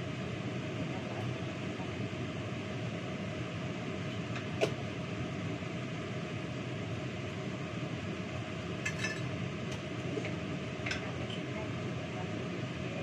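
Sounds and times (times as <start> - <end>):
kitchenware clinking: 8.8 - 9.3.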